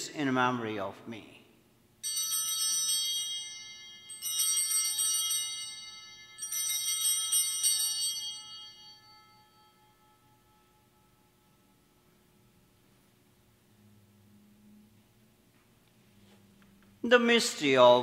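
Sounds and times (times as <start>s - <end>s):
altar bells ringing: 2.0s - 14.8s.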